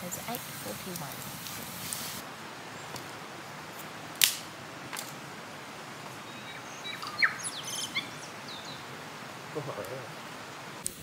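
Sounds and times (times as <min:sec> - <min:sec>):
steady outdoor hiss: 0:00.0 - 0:11.0
stick snapping: 0:04.2 - 0:05.1
bird chirping and whistling: 0:06.3 - 0:08.8.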